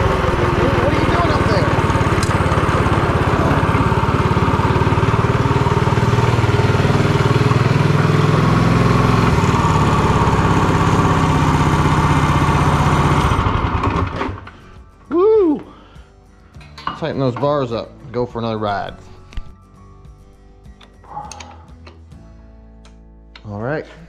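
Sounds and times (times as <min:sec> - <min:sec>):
small engine running: 0:00.0 - 0:14.8.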